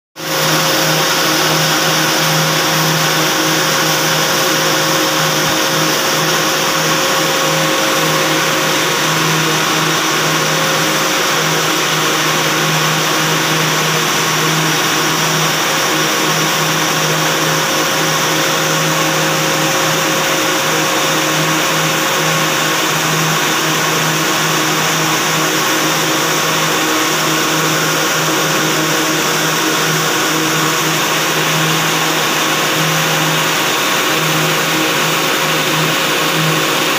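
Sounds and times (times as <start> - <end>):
low hum: 0.2 - 23.0
winding machines drone and hiss: 0.2 - 36.9.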